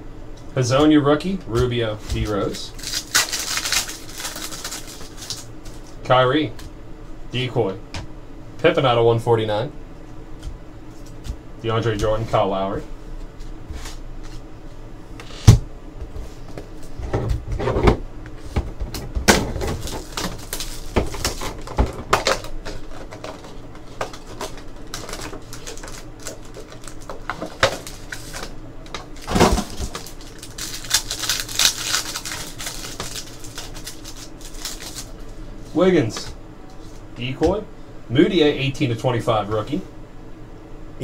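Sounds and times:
pack wrapper tearing: 2.7s - 5.9s, 19.8s - 28.5s, 29.1s - 35.2s.

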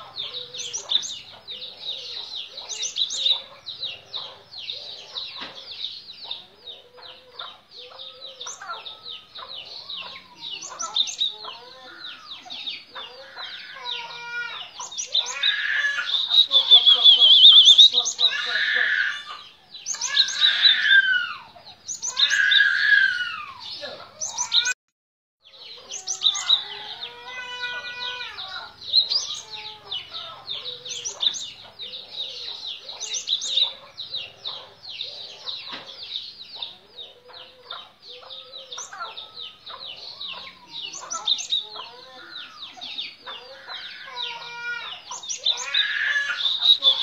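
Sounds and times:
bird calling: 0.0s - 24.8s, 25.5s - 47.0s
bird chattering: 14.8s - 18.4s, 45.1s - 47.0s.

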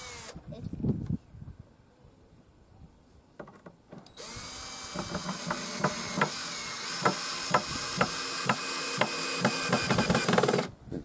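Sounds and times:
cordless drill driving screw: 0.0s - 0.4s, 4.0s - 10.7s.

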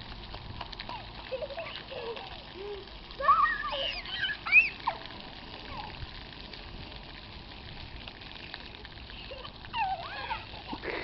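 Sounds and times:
water jets spraying on concrete: 0.0s - 11.0s
child squealing: 1.7s - 5.1s, 9.3s - 10.9s.

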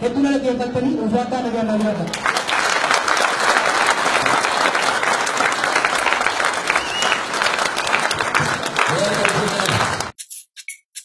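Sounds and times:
audience applauding: 2.1s - 10.1s.

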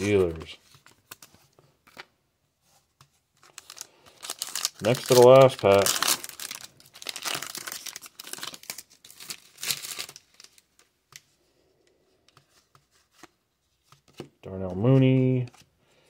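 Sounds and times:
foil wrapper crinkling: 3.4s - 10.6s.

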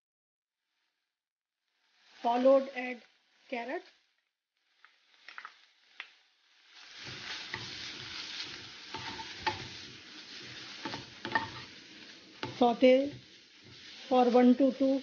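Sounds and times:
carrot sizzling in oil: 1.6s - 15.0s
spatula scraping a pan: 4.6s - 15.0s.

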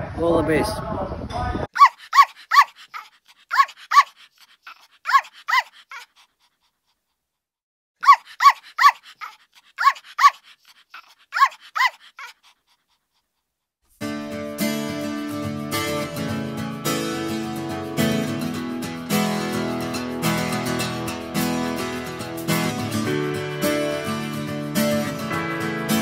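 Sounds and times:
small dog yapping: 1.7s - 6.7s, 8.0s - 13.0s
acoustic guitar music: 14.0s - 26.0s.

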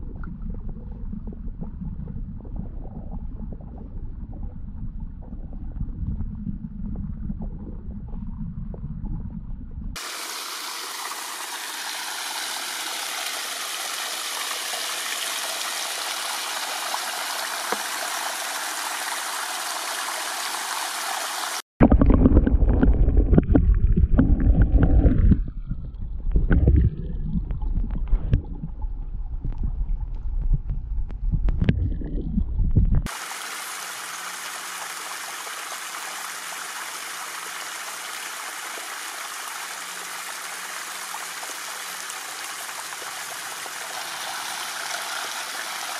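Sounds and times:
stream water flowing: 10.0s - 21.6s, 33.0s - 45.9s.

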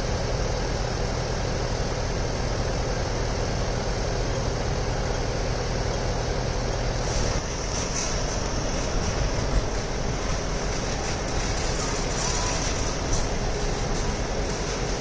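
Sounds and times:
idling engines hum: 0.0s - 15.0s
trolley wheels rattling on road: 7.0s - 15.0s.

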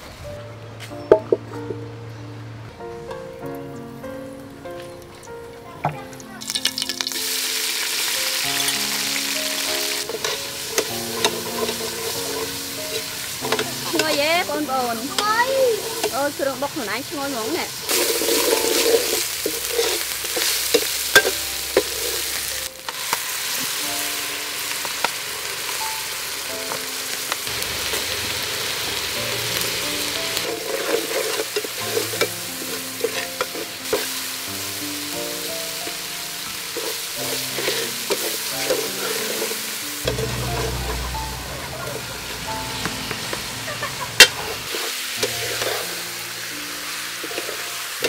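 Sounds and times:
soft background music: 0.0s - 43.7s, 44.7s - 48.0s
paste sizzling in oil: 6.2s - 48.0s
metal ladle scraping pot: 10.0s - 14.3s, 15.7s - 16.2s, 17.8s - 22.3s, 30.3s - 34.1s, 36.7s - 41.0s, 44.2s - 46.0s.

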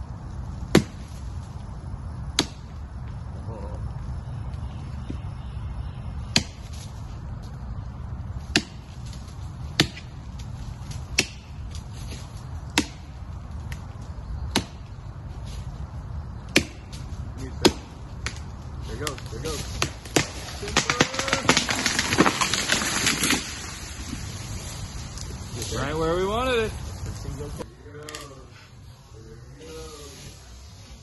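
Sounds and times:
hatchet chopping wood: 0.7s - 1.0s, 2.4s - 2.7s, 6.3s - 6.6s, 8.5s - 8.9s, 9.7s - 10.1s, 11.1s - 11.5s, 12.7s - 13.1s, 14.5s - 14.9s, 16.5s - 17.0s, 17.6s - 18.4s, 19.8s - 23.4s.

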